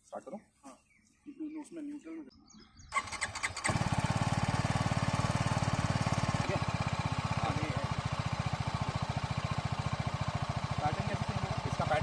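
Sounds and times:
motorcycle engine idling: 2.9 - 12.0.

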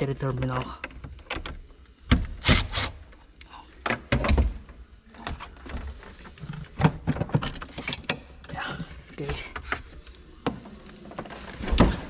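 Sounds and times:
clicks and knocks of metal and plastic: 3.8 - 8.2.

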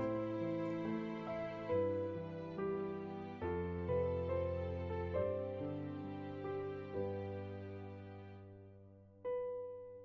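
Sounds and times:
slow gentle background music: 0.0 - 10.0.

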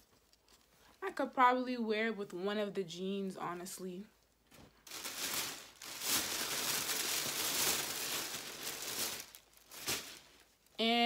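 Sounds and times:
clothes rustling and crinkling: 0.0 - 1.4, 3.5 - 10.8.

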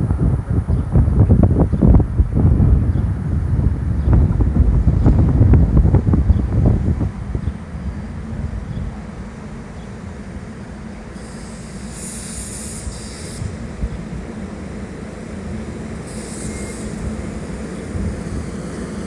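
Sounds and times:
train rumble and hum: 0.0 - 19.0
high hiss: 9.0 - 19.0.

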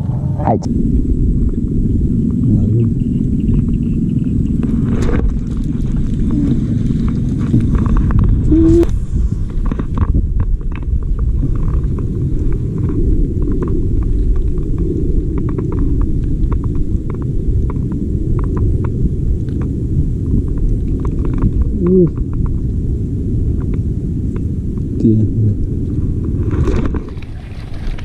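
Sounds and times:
wind rumbling on microphone: 0.0 - 28.0.

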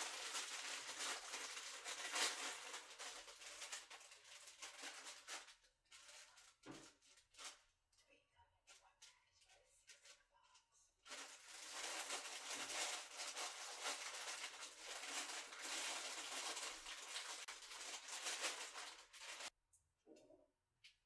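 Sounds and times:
plastic bag crinkling: 0.0 - 7.7, 11.0 - 19.6.

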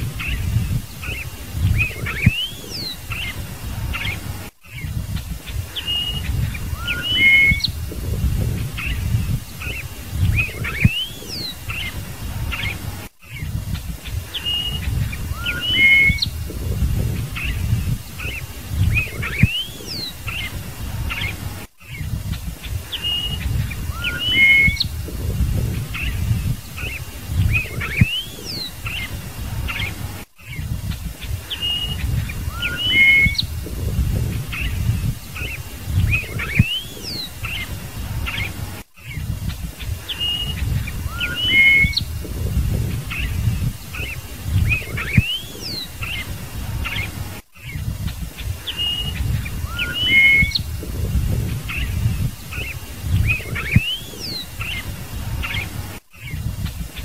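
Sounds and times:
bird singing whistled notes: 0.0 - 47.9, 48.6 - 56.5
low rumble: 16.3 - 19.3, 24.8 - 26.7, 33.4 - 35.2, 42.0 - 43.9.

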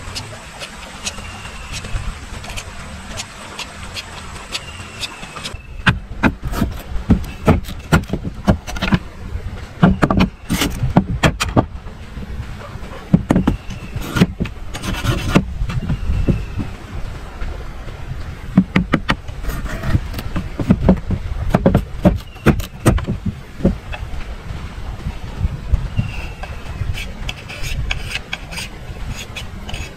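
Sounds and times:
machete scraping: 6.3 - 9.0, 10.3 - 11.6, 13.4 - 15.5, 19.4 - 20.6, 26.0 - 29.9.

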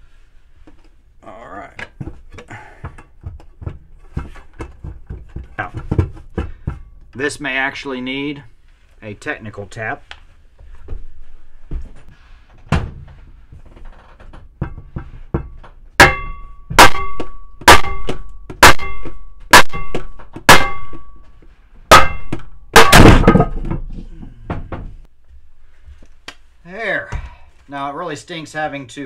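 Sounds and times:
hammer striking metal: 16.0 - 21.3, 21.9 - 23.8.

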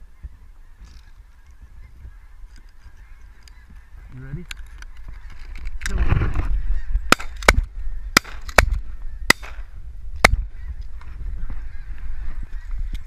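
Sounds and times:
geese honking: 0.1 - 5.7, 6.4 - 8.4, 10.5 - 13.0
shotgun blasts: 7.1 - 10.4.

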